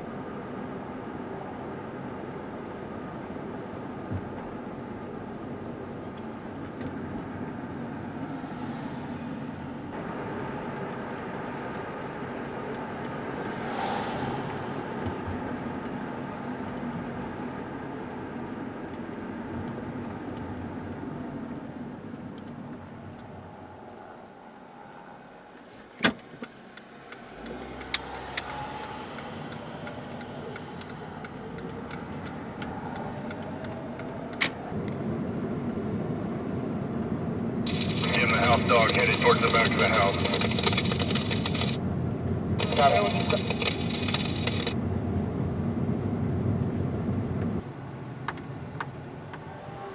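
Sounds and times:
car engine and tyre noise: 0.0 - 49.9
sharp clicks: 26.0 - 34.6, 40.2 - 41.8, 42.6 - 44.8
faint regular ticks: 26.4 - 34.1.

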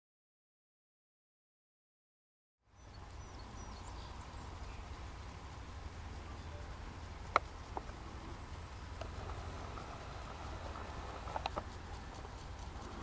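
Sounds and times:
faint bird chirps: 2.7 - 13.0.

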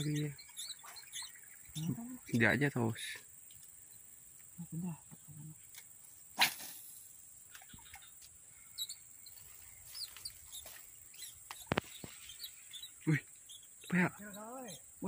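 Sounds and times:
bird chirps: 0.0 - 5.8, 7.5 - 15.0
high-pitched insect drone: 0.0 - 15.0.

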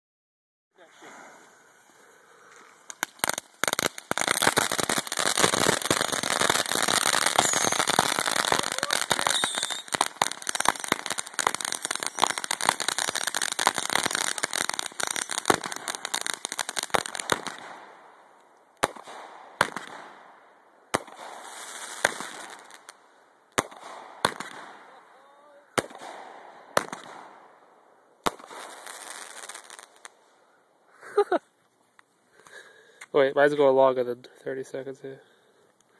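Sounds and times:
firework hiss: 0.9 - 17.6, 21.2 - 23.0
firework fizz: 1.0 - 17.8
firework crackling: 2.6 - 18.0, 20.9 - 27.5, 28.2 - 30.3
sharp firework bangs: 3.0 - 17.8, 18.8 - 20.1, 23.6 - 24.8, 25.7 - 27.4.

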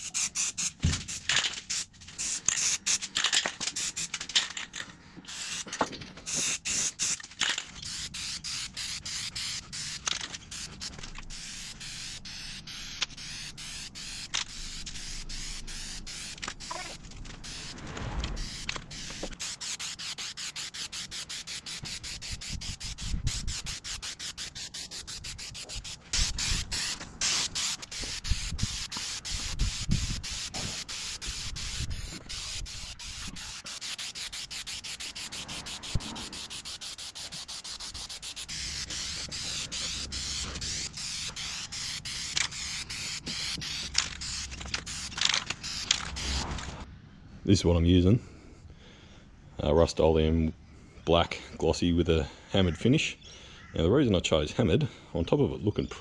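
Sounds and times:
spray-paint can hissing: 0.0 - 4.2, 5.3 - 46.7
low rumbles: 16.9 - 19.4.

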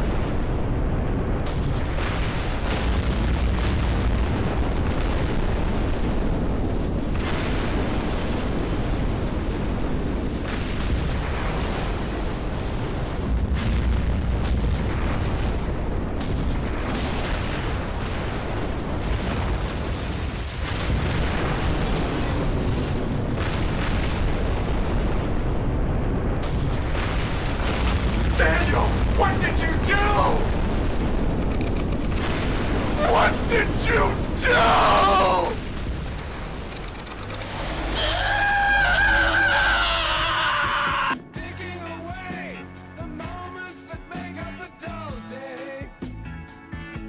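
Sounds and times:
loud deep rumbling: 8.6 - 40.4
crackle of small knocks: 30.5 - 33.0, 35.7 - 37.8.

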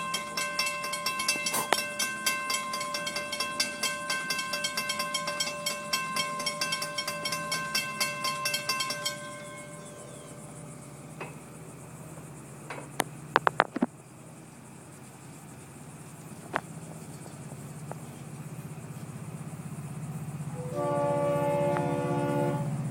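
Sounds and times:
railroad crossing bell ringing: 0.0 - 11.4, 20.5 - 22.7.

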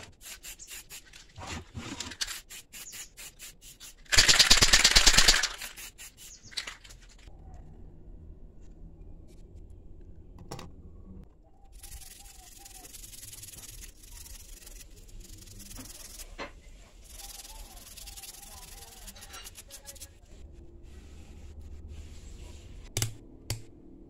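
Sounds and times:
toothbrush scrubbing circuit board: 11.8 - 16.4, 17.0 - 20.1.

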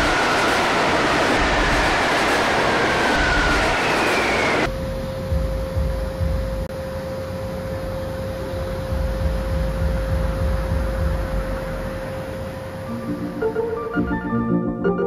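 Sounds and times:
high squeal: 0.0 - 4.8
steady humming tone: 0.0 - 14.1
subway train rumble: 0.0 - 15.0.

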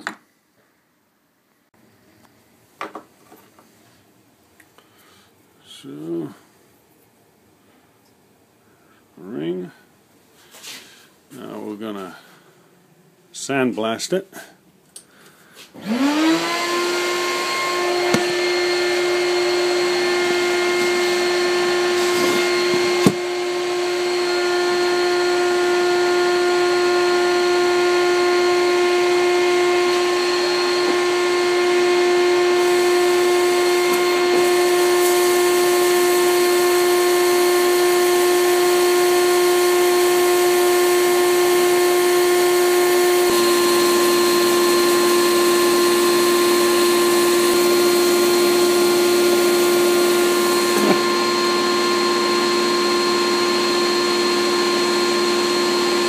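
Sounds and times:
sandblasting cabinet motor humming: 15.8 - 56.0.

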